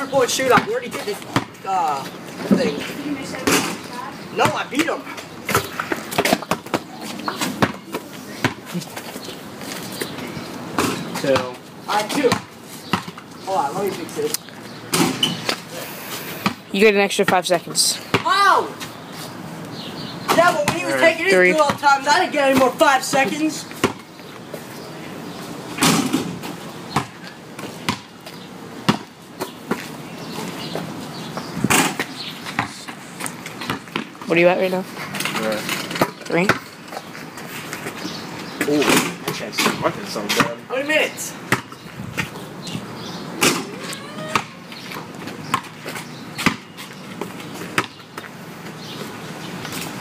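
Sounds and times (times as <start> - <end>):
basketball bouncing on concrete: 0.2 - 3.8, 4.4 - 9.0, 10.7 - 13.2, 16.4 - 18.4, 20.3 - 24.1, 26.9 - 29.9, 30.7 - 34.6, 35.9 - 36.7, 41.5 - 48.4.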